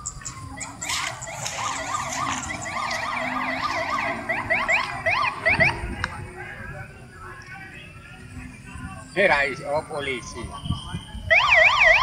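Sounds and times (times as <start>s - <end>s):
police siren yelp: 0.0s - 6.2s, 11.2s - 12.0s.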